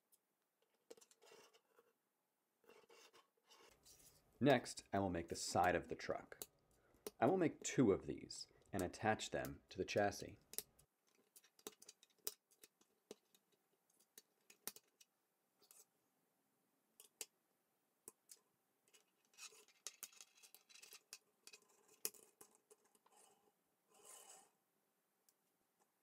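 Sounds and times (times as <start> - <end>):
plastic pieces rattling on table: 19.4 - 22.1.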